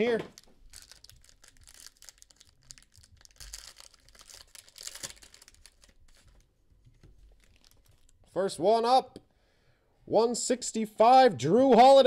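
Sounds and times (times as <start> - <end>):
foil wrapper crinkling and tearing: 0.3 - 6.5, 7.3 - 8.2.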